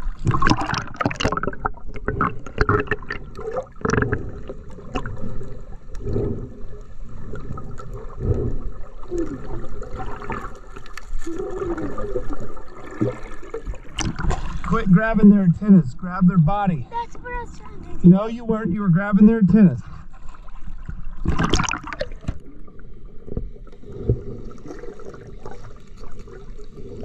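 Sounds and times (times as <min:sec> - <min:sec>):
splashing into water: 0:00.0 - 0:05.4, 0:08.9 - 0:14.7, 0:20.3 - 0:22.4.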